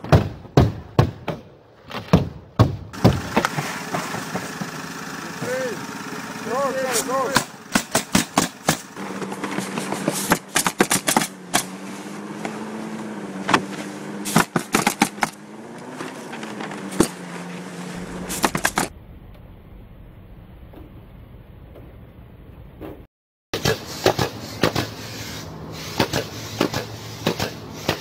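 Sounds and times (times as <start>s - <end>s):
motor hum: 3.0s - 22.6s
nail gun shots: 7.3s - 8.9s, 10.3s - 11.7s, 14.3s - 15.4s, 18.3s - 18.9s, 23.6s - 25.0s, 26.0s - 28.0s.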